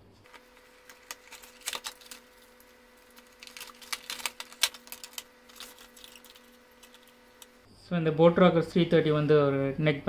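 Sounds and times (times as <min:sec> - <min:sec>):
faint steady hum: 0:00.0 - 0:10.0
plastic pouch crinkling: 0:00.2 - 0:07.6.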